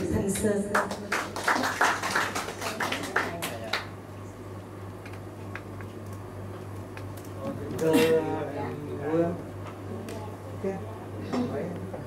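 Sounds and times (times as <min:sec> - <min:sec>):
audience applause: 0:00.8 - 0:03.9.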